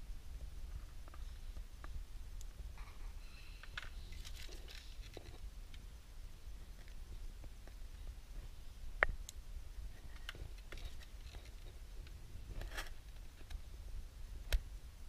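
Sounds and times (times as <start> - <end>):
small parts clicking and scraping: 2.8 - 5.8, 9.9 - 13.6.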